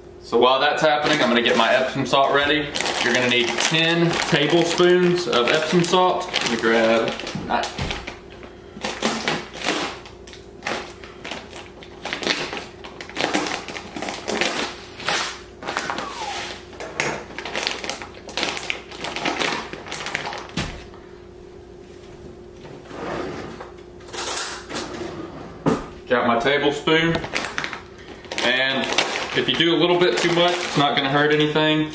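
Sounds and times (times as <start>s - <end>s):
plastic bag crinkling: 0.8s - 20.8s, 27.1s - 31.9s
knife cutting plastic bag: 1.0s - 8.1s, 8.8s - 20.6s, 27.2s - 31.5s.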